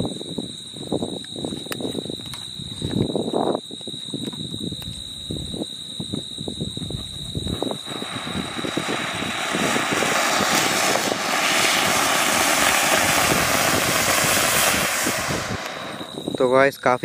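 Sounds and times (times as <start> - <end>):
fountain firework hissing and crackling: 7.3 - 17.0.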